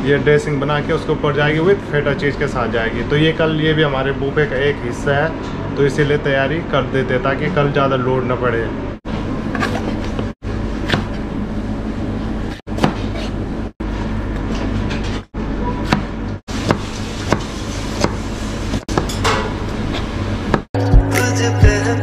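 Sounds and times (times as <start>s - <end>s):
steady background hum: 0.0s - 20.7s
knife chopping on cutting board: 9.6s - 11.2s, 12.7s - 13.4s, 15.8s - 19.2s.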